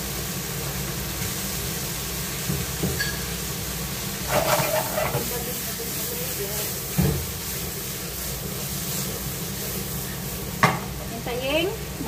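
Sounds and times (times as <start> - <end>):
shrimp sizzling in oil: 0.0 - 12.0
pan clattering: 4.2 - 5.4.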